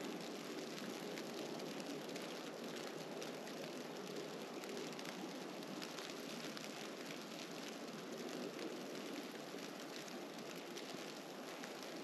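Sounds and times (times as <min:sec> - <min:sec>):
faint irregular ticks: 0:00.0 - 0:12.0.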